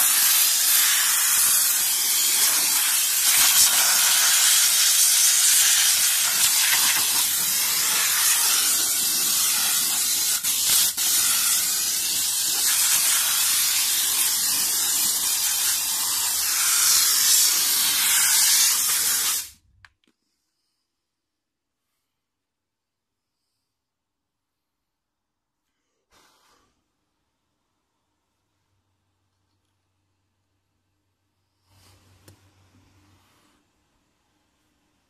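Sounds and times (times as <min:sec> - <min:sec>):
steam jet hissing: 0:00.0 - 0:19.6.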